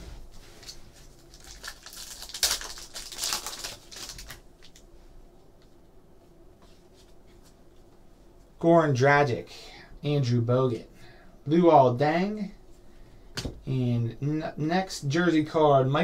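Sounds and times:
handling of cards: 0:00.2 - 0:04.9
foil wrapper tearing and crinkling: 0:00.6 - 0:04.8.

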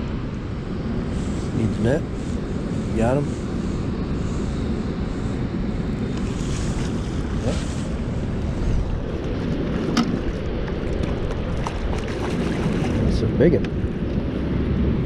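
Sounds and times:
wind rumbling on microphone: 0:00.0 - 0:15.0
river water rushing: 0:06.2 - 0:13.1.

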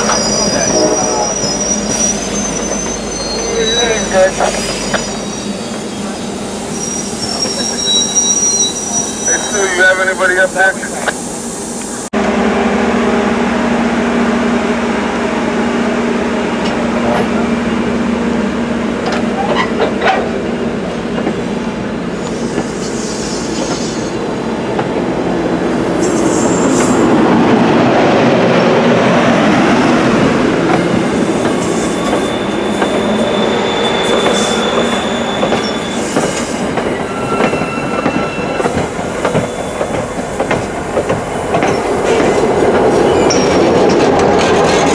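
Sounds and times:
faint wheel squeals: 0:00.0 - 0:09.7, 0:31.8 - 0:38.8
train wheels rumbling on rail: 0:00.0 - 0:44.9.

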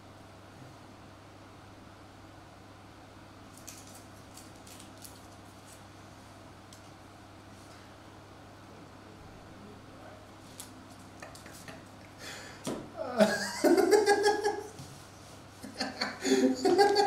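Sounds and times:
man laughing: 0:13.0 - 0:14.8, 0:15.6 - 0:17.0.

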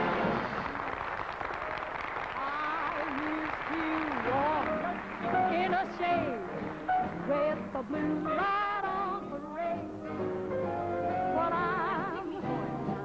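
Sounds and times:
jazz band music: 0:00.0 - 0:00.8, 0:03.8 - 0:13.0.

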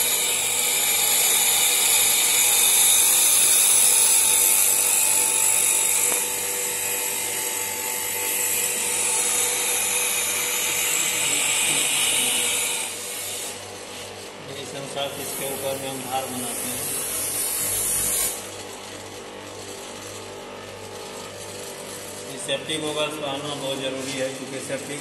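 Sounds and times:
grinder motor hum: 0:00.0 - 0:25.0.

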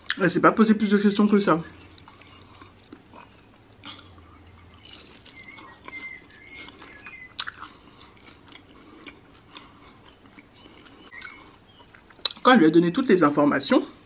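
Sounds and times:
close chewing: 0:01.8 - 0:12.5
mouth clicks: 0:01.9 - 0:12.5.

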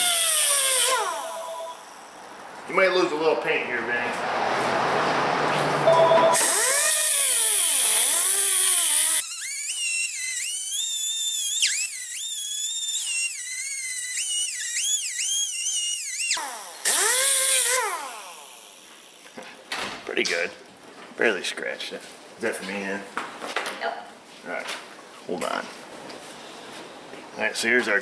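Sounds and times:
pneumatic cutoff tool whining: 0:00.0 - 0:02.0, 0:06.4 - 0:19.4.

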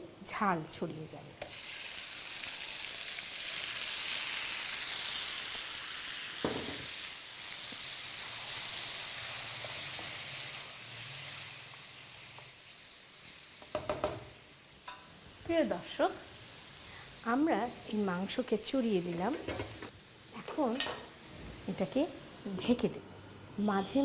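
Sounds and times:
meat sizzling in hot oil: 0:01.4 - 0:20.2
knock: 0:13.7 - 0:14.2.

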